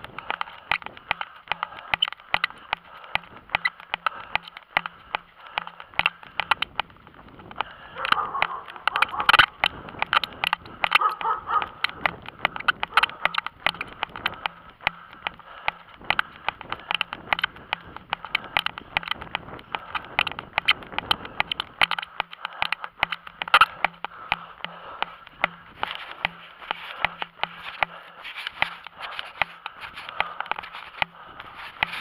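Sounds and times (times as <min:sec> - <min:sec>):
camera microphone clicking and rubbing: 0:00.0 - 0:32.0.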